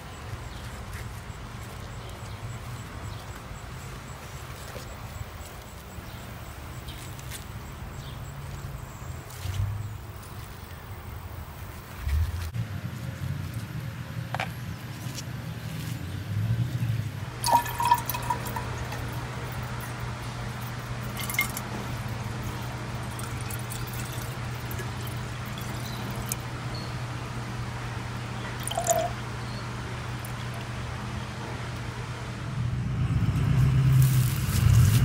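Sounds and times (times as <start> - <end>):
water pouring into metal bottle: 17.4 - 19.7, 21.0 - 21.7, 22.5 - 26.4, 28.6 - 29.1.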